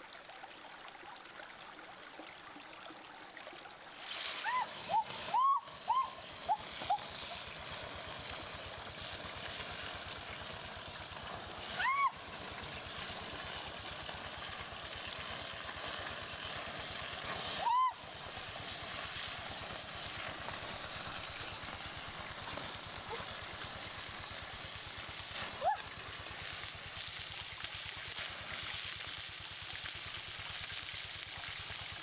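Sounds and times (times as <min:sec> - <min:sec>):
forest stream running: 0:00.0 - 0:32.0
whistle-like calls: 0:04.4 - 0:07.4, 0:17.5 - 0:18.1.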